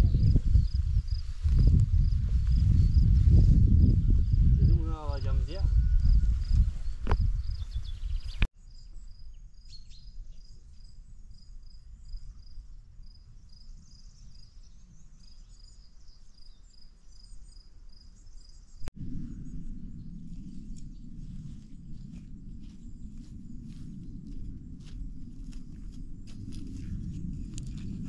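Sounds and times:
steady low rumble: 18.9 - 28.0
loud low noise: 19.0 - 25.9.

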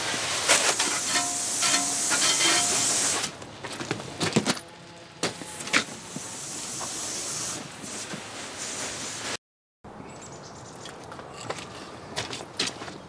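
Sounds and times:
hose nozzle spraying water: 0.0 - 3.4.

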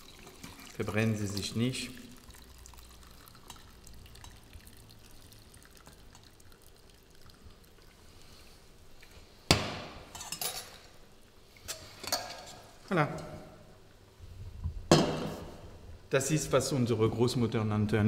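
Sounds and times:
liquid trickling through sieve: 0.0 - 9.1.

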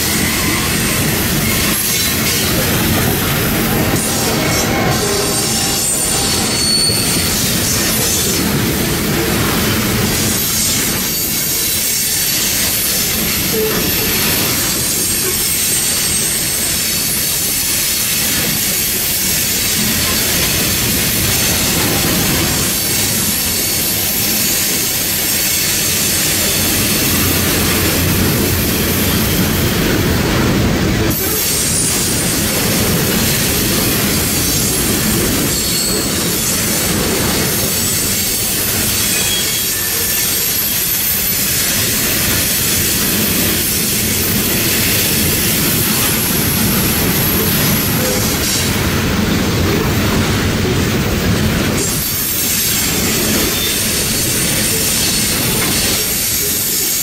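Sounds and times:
thin high-pitched rail tones: 0.0 - 8.4, 37.7 - 48.7
freight train wheels rumbling on rails: 0.0 - 57.0.

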